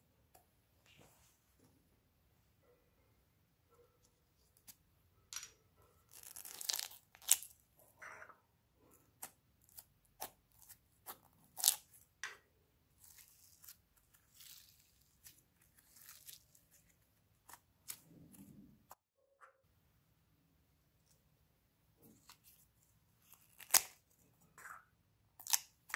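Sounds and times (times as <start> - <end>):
rustling and squishing: 5.9 - 12.2, 12.9 - 19.0, 22.0 - 24.8.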